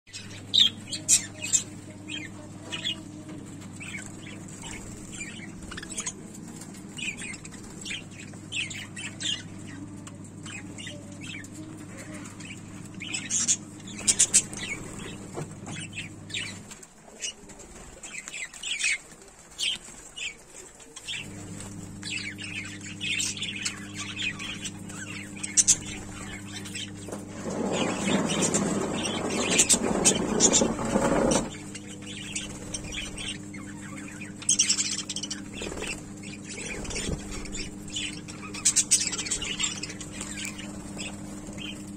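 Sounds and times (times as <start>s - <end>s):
steady low hum: 0.1s - 41.9s
budgerigars chirping: 10.4s - 16.7s, 22.0s - 41.9s.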